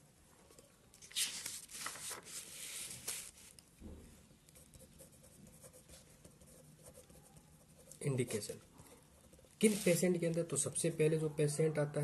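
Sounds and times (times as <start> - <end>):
paper rustling: 0.9 - 3.8, 9.6 - 10.7.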